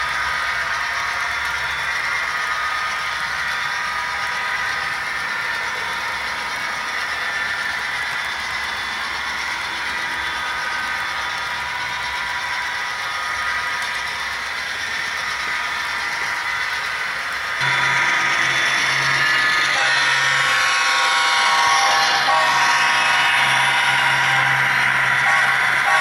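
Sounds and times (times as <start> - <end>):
model train wheels clattering: 0.0 - 20.8.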